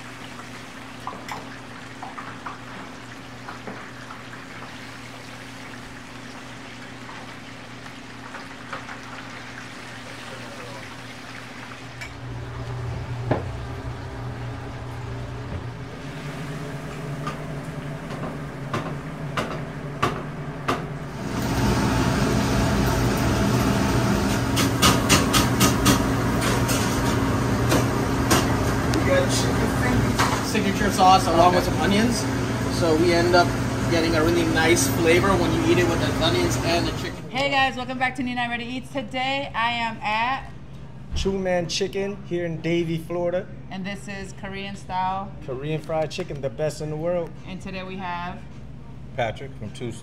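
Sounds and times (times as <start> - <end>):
chicken deep-frying in oil: 0.0 - 19.3, 21.1 - 37.2
kitchen hum: 0.0 - 43.0.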